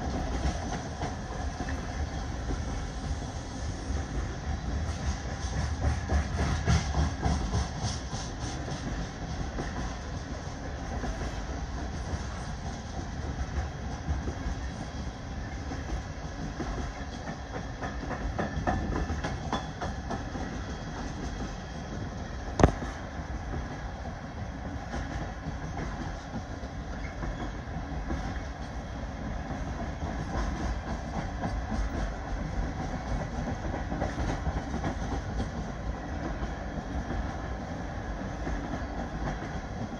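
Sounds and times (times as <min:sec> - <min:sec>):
train wheels rumbling and clicking: 0:00.0 - 0:39.9.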